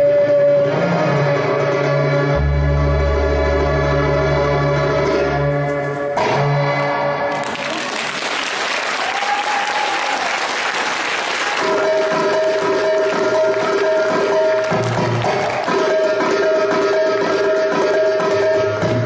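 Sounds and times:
audience applauding: 7.3s - 16.1s
live band melody: 11.4s - 19.0s.

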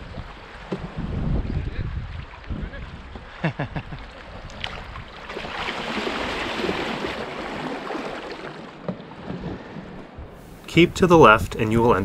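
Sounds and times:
river water rushing: 4.1s - 9.2s.

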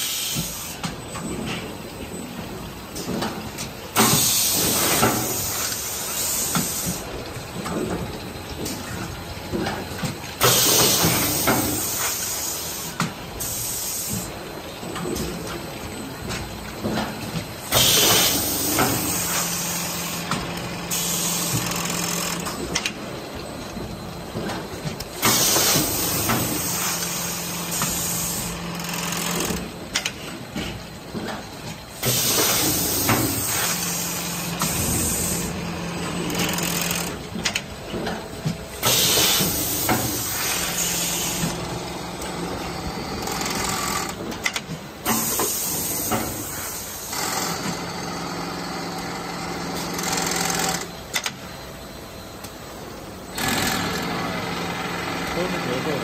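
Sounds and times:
compressed air hiss: 0.0s - 0.8s, 10.4s - 14.3s, 17.7s - 19.7s.

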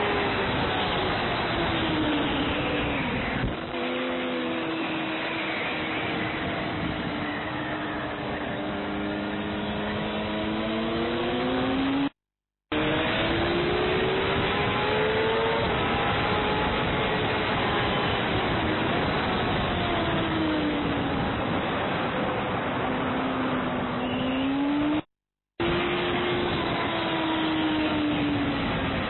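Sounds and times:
rushing wind noise: 0.0s - 8.6s
racing motorcycle engine accelerating: 0.0s - 21.3s.

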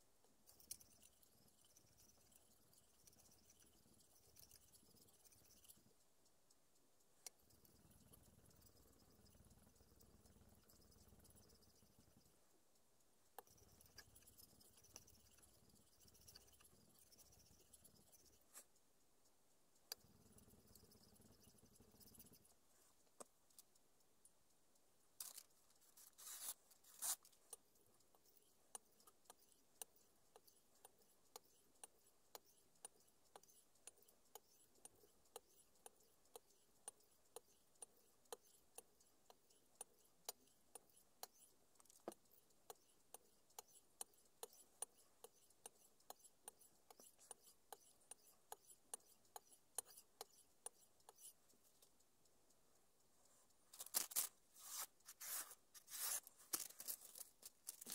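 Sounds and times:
faint evenly spaced clicks: 0.0s - 57.9s
scraping rubs: 25.2s - 27.3s, 53.8s - 57.9s.

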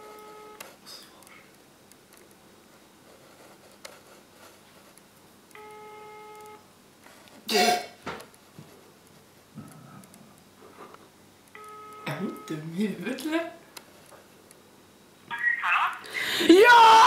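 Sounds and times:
telephone ringback tone: 5.6s - 6.6s, 11.6s - 12.6s.

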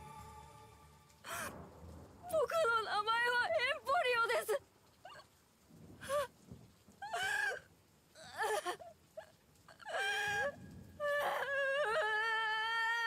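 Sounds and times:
boy crying in sobbing wails: 7.0s - 13.0s.

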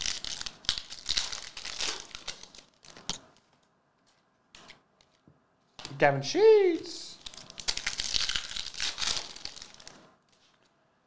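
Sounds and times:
foil wrapper crinkling and tearing: 0.0s - 3.2s, 7.1s - 10.0s.

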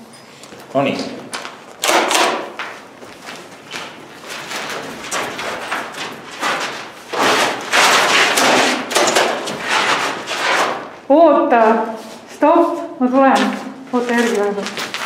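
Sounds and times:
scuffing on gritty concrete floor: 2.4s - 8.8s, 11.5s - 15.0s.

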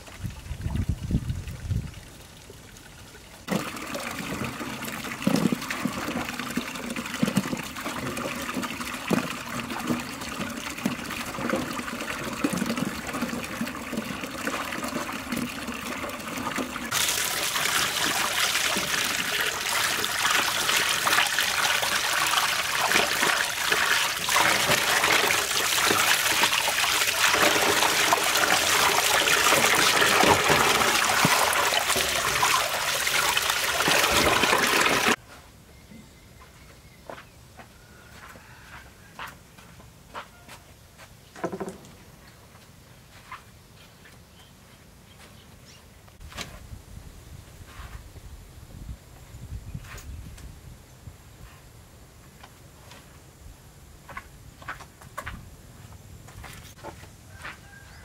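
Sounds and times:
water trickling and splashing: 0.0s - 35.2s.

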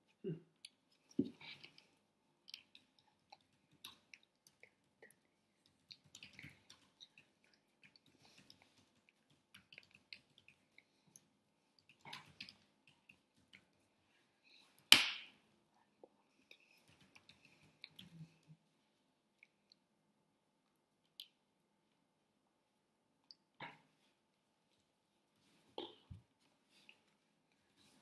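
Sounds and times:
faint clicks and ticks: 0.6s - 13.9s
loud sharp smack: 14.9s - 15.3s.

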